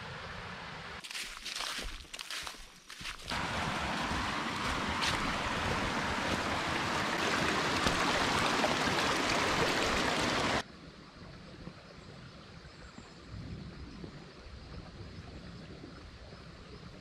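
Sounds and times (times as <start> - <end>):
water rushing over rocks: 3.3 - 10.6.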